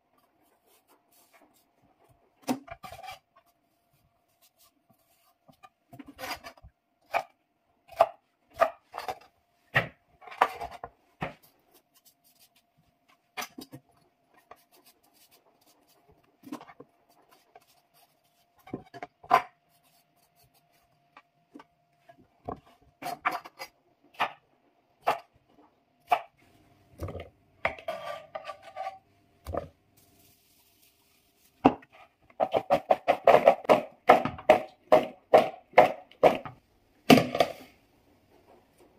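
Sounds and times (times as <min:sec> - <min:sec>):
knife chopping on wooden board: 0:32.4 - 0:37.6.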